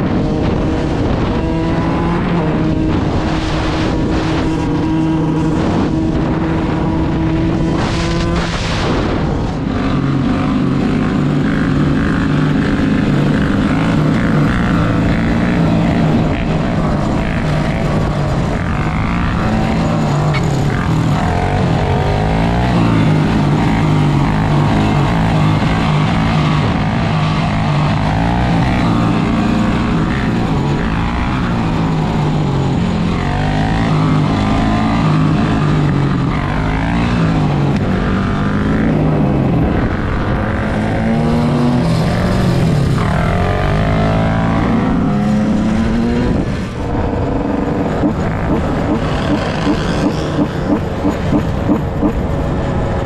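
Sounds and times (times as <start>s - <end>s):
dirt bike engine running: 0.0s - 53.0s
wind buffeting microphone: 0.0s - 53.0s.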